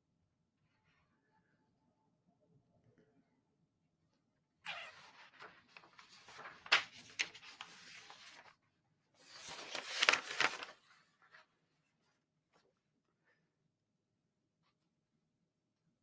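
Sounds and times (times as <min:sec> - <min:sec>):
papers rustling and shuffling: 0:04.7 - 0:08.6, 0:09.2 - 0:12.7.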